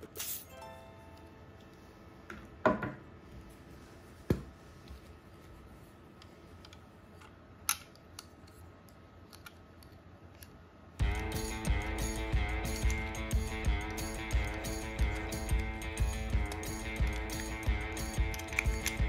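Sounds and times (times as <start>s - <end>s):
small toy parts clicking: 12.6s - 19.0s
toy parts rattling: 13.8s - 19.0s.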